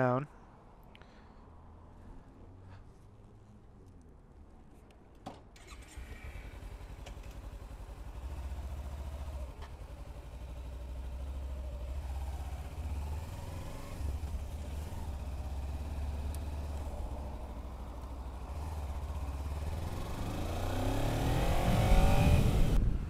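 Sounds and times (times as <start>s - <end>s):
motorcycle engine riding off: 5.6s - 23.0s.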